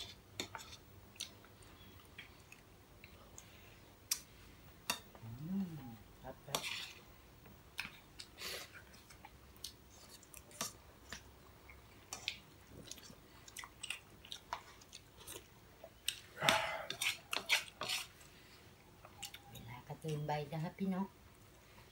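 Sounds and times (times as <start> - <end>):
people chewing: 7.8 - 20.1.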